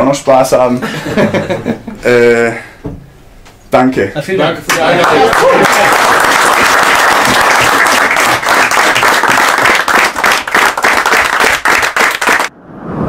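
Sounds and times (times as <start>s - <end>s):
group of people clapping: 4.7s - 12.5s.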